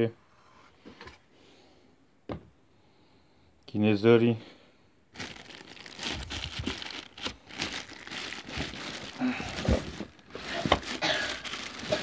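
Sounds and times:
plastic wrapping crinkling: 5.1 - 12.0.

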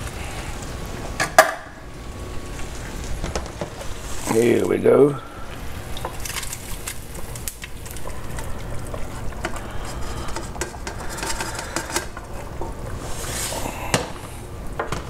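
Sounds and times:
metal scraping and clinking: 8.4 - 12.2.

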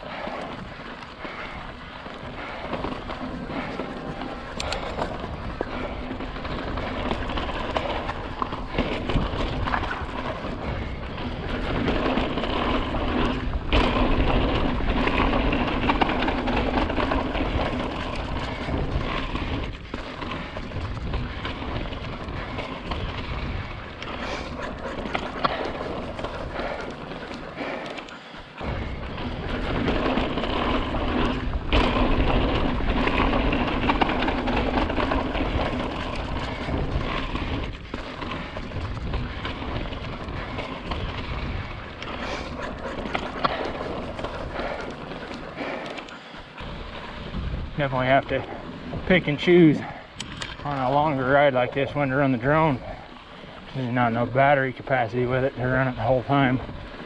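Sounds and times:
bike tyres rumbling on rock: 0.0 - 57.0
wind buffeting microphone: 0.0 - 57.0.

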